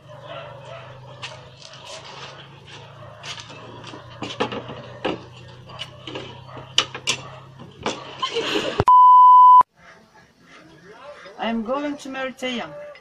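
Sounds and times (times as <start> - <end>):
high-pitched beep: 8.9 - 9.7.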